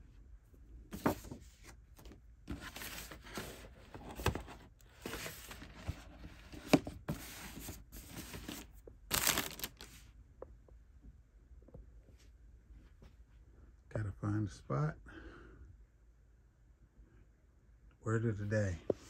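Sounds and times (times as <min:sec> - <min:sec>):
tissue paper rustling and crinkling: 0:02.5 - 0:10.0.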